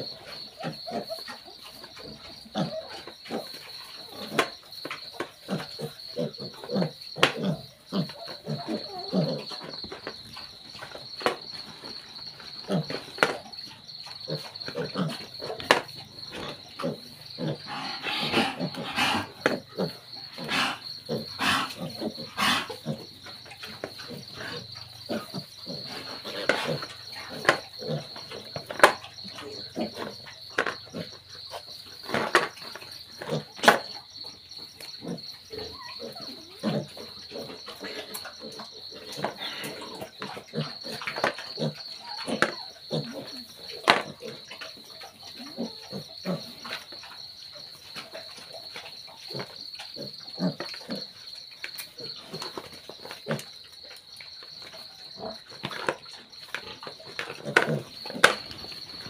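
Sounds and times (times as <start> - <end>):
crickets chirring: 0.0 - 59.0
piglets chomping and snuffling: 0.2 - 34.0, 47.8 - 59.0.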